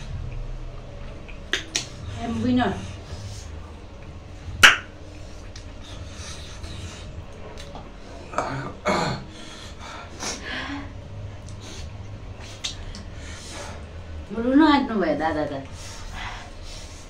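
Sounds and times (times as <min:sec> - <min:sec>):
noisy eating mouth sounds: 0:00.0 - 0:14.2
mouth smack: 0:01.3 - 0:02.0, 0:04.5 - 0:05.7, 0:12.4 - 0:13.1.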